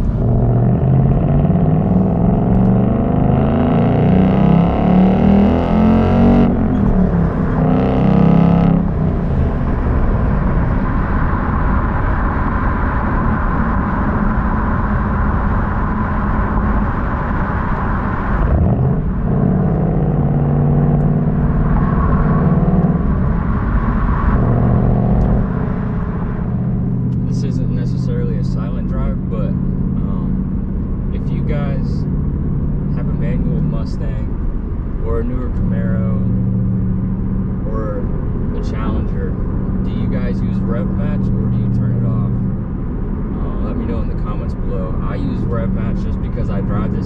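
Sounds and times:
car engine exhaust accelerating: 0.0s - 47.0s
road noise: 0.0s - 47.0s.

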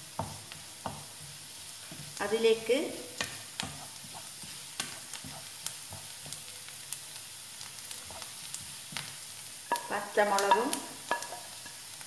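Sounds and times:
onions sizzling in a pan: 0.0s - 12.0s
wooden spatula scraping a pan: 3.2s - 6.5s, 7.9s - 11.8s.

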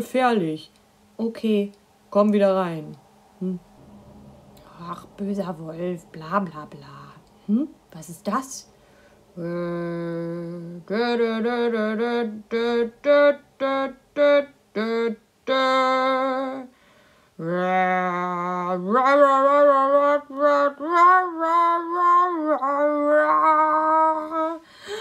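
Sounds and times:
person singing wordless tune: 9.4s - 16.7s, 17.4s - 25.0s.

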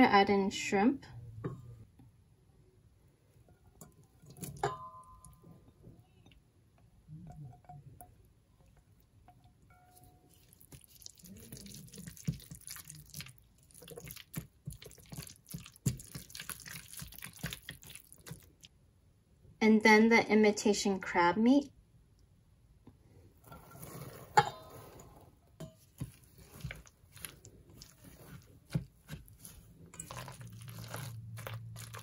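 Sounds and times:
spatula stirring wet mixture: 3.4s - 18.7s, 23.4s - 32.0s
ceramic bowl clinking on steel bowl: 3.8s - 5.4s, 29.9s - 32.0s.

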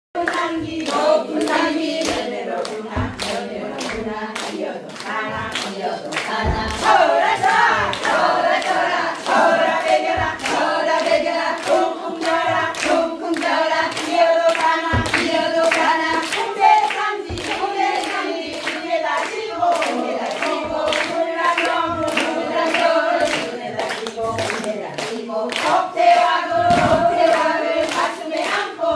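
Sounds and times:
women singing work song: 0.2s - 28.9s
sharp knocks beat: 0.5s - 4.2s, 6.2s - 22.5s, 26.6s - 28.0s.

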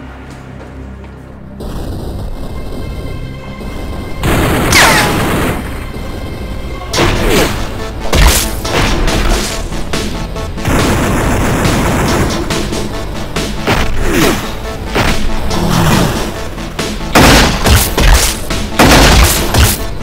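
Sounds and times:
action music: 0.0s - 20.0s
booming pistol shots: 17.2s - 19.9s.

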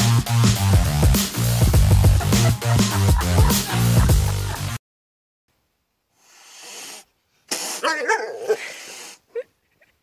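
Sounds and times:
cat hissing and growling: 6.3s - 9.2s.

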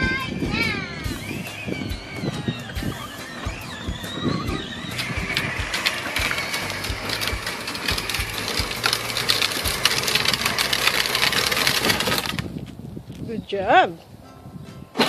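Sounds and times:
electric toy car motor whirring: 0.6s - 12.6s
plastic wheels clattering on pavement: 2.4s - 12.8s.

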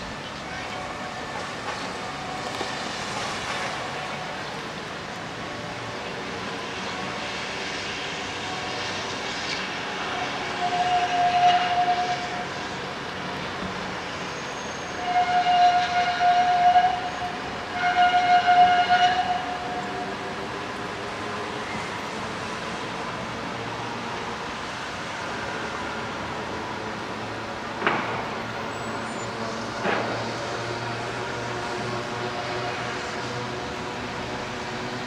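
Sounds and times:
steady rain: 0.0s - 11.1s
railway warning tone: 0.0s - 35.0s
tram running: 0.0s - 35.0s.

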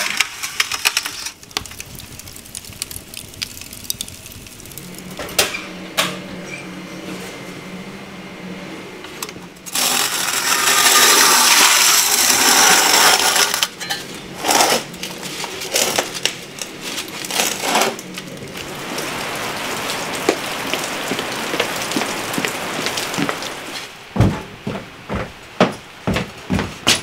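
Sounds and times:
steady hiss with light ticks: 0.0s - 5.1s
metal pan scraping oven floor: 9.7s - 18.2s
knocks: 24.2s - 27.0s.

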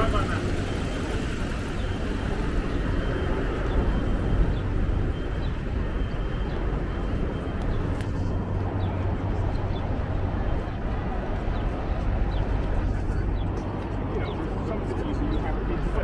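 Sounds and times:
traffic rumble: 0.0s - 16.0s.

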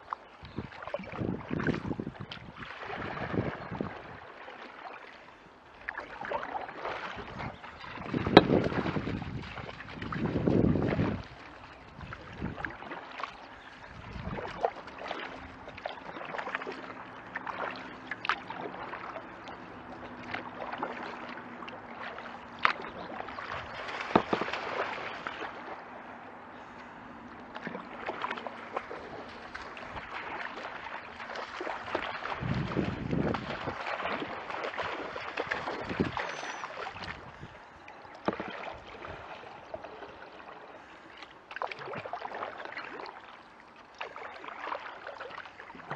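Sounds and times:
paddle splashing in water: 0.0s - 45.9s
wind buffeting microphone: 0.4s - 4.2s, 7.2s - 12.8s, 13.8s - 14.7s, 31.8s - 36.4s, 37.0s - 37.6s.

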